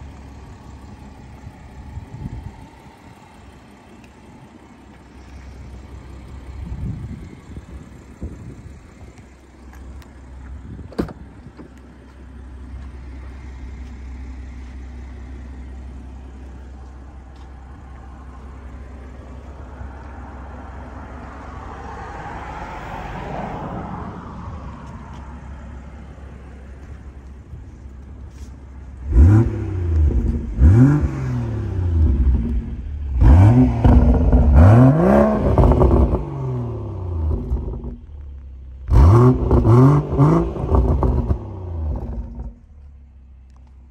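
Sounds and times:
car engine idling: 0:00.0 - 0:43.9
car engine revving in blips: 0:24.8 - 0:38.2, 0:38.8 - 0:42.7.

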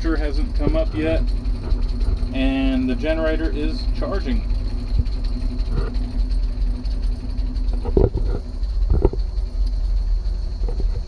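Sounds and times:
engine idling low rumble: 0:00.0 - 0:11.0.

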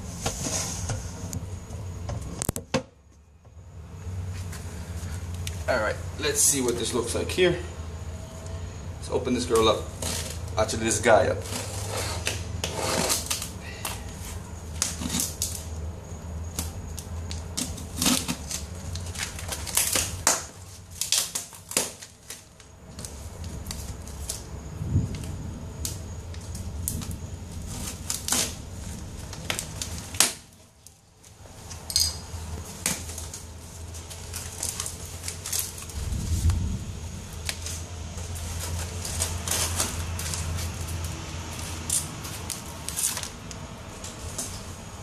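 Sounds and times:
steady low hum: 0:00.0 - 0:45.0
packing tape tearing: 0:09.5 - 0:10.6, 0:11.2 - 0:15.7, 0:16.5 - 0:24.5, 0:25.2 - 0:30.6, 0:32.7 - 0:36.6, 0:37.4 - 0:44.6
cardboard crackling and rustling: 0:17.2 - 0:25.4, 0:26.3 - 0:31.7, 0:32.5 - 0:44.8.

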